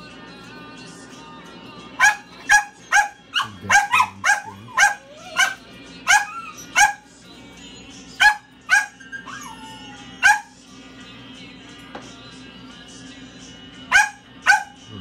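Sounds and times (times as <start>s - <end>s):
soft background music: 0.0s - 15.0s
small dog yapping: 2.0s - 7.0s.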